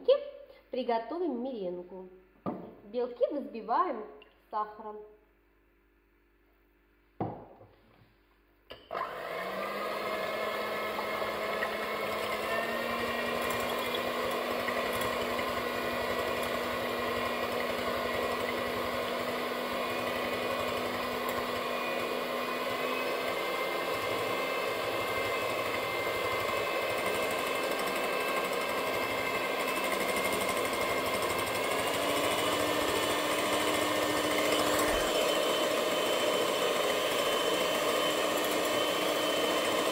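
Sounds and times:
electric hand mixer running: 0:08.8 - 0:39.9.

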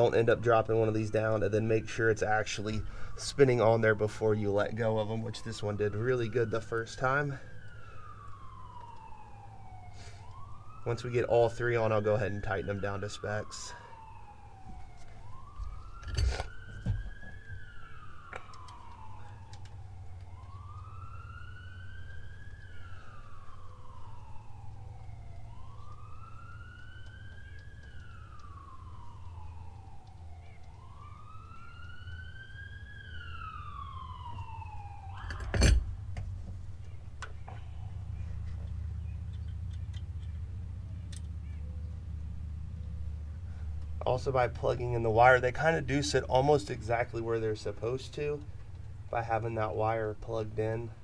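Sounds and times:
emergency siren wailing: 0:00.0 - 0:51.0
low steady rumble: 0:17.0 - 0:51.0.

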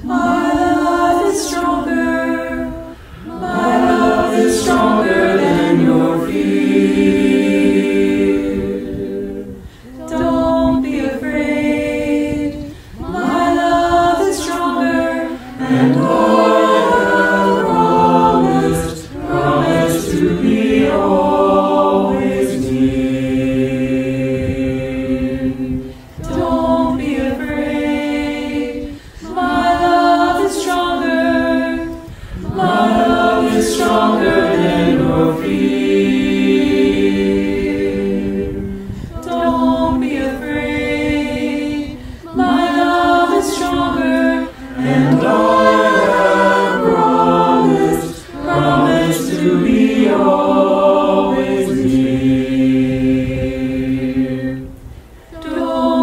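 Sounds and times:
choir singing a hymn a cappella: 0:00.0 - 0:56.0
singers breathing: 0:02.9 - 0:03.4, 0:09.6 - 0:10.0, 0:12.6 - 0:13.0, 0:28.8 - 0:29.3, 0:32.1 - 0:32.5, 0:38.6 - 0:39.2, 0:41.9 - 0:42.3.

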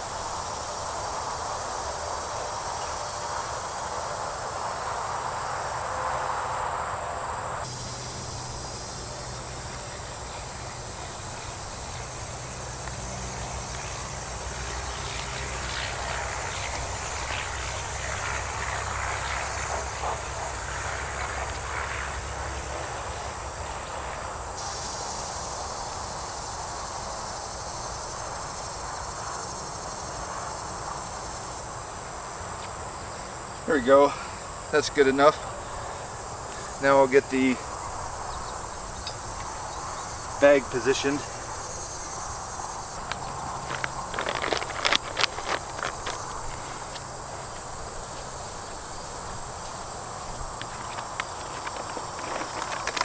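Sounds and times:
insects chirping: 0:00.0 - 0:53.0
short rustling: 0:43.0 - 0:47.5, 0:49.8 - 0:53.0.

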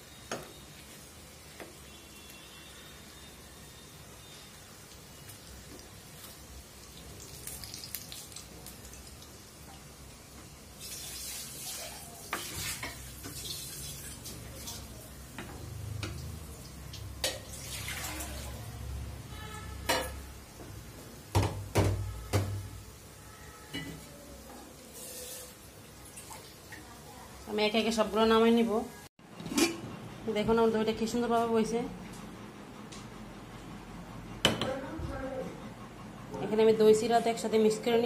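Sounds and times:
oil sizzling in pan: 0:00.0 - 0:19.0, 0:24.0 - 0:27.6.

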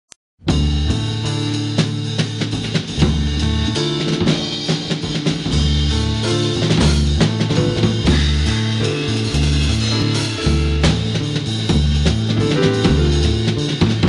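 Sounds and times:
bass line: 0:00.4 - 0:14.0
drum beat: 0:00.5 - 0:14.0.

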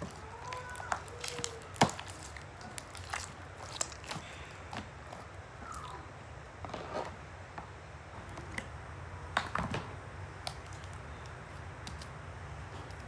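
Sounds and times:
slime kneaded by hand: 0:00.0 - 0:06.1, 0:10.3 - 0:13.0
low steady hum: 0:00.0 - 0:13.0.

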